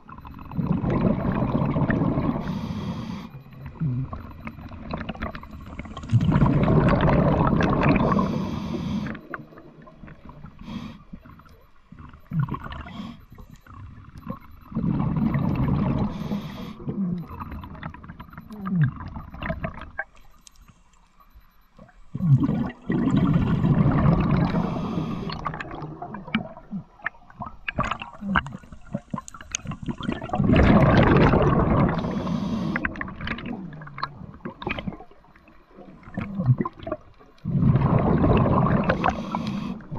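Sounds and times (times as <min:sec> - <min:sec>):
diver exhaling bubbles underwater: 0:00.5 - 0:02.5, 0:03.7 - 0:10.6, 0:14.7 - 0:19.8, 0:22.2 - 0:35.1, 0:36.0 - 0:39.9.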